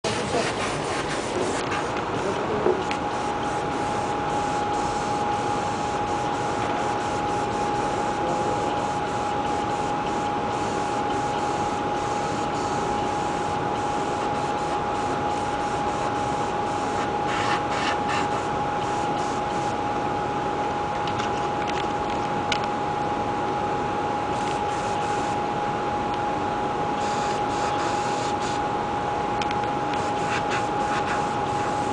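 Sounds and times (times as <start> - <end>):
constant single tone: 2.8 - 17.0, 27.0 - 28.6
airbrush air hiss: 3.1 - 13.2, 15.9 - 19.7, 27.0 - 28.6, 30.0 - 31.9.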